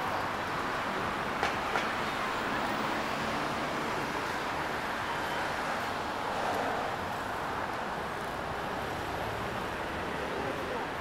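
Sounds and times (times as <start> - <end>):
city traffic noise: 0.0 - 11.0.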